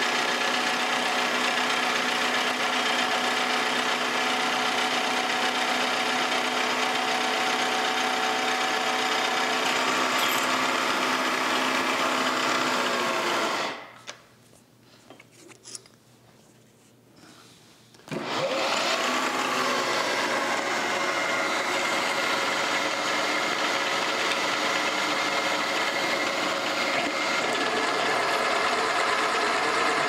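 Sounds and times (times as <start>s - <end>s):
drill bit cutting metal: 8.2s - 13.7s.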